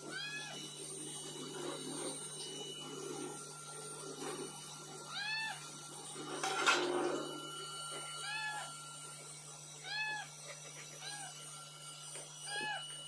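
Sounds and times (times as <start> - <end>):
cat meowing: 9.8 - 10.3.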